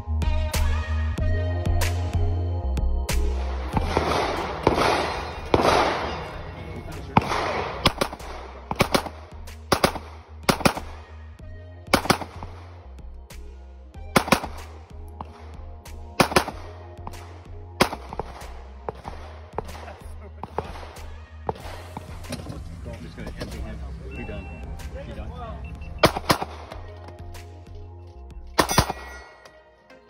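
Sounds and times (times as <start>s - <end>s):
background music: 0.0s - 30.0s
pistol shots: 3.4s - 11.2s, 11.9s - 12.8s, 14.1s - 22.4s, 26.0s - 27.0s, 28.6s - 29.5s.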